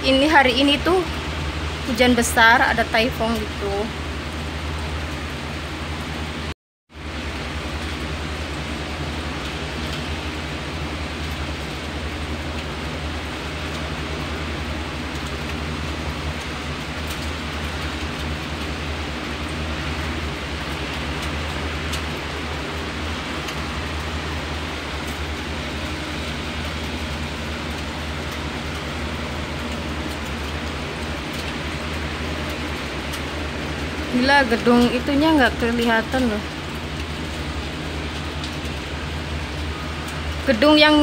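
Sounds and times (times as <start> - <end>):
heavy rain and wind: 0.0 - 41.0
low steady hum: 0.0 - 41.0.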